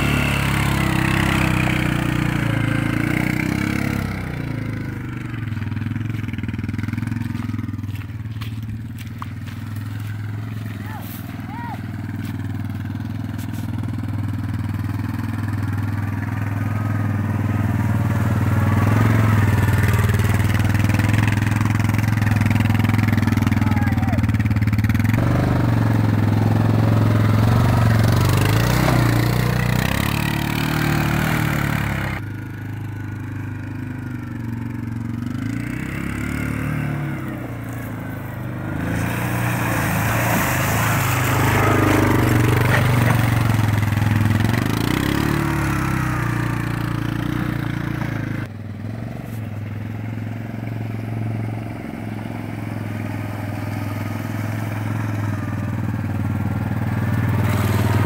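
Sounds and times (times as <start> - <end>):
atv engine running: 0.0 - 58.0.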